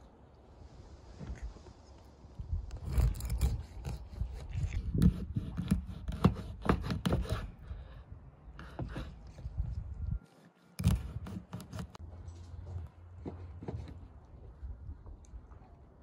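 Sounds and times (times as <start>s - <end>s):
knife sawing through fish: 2.8s - 7.9s, 10.8s - 12.0s.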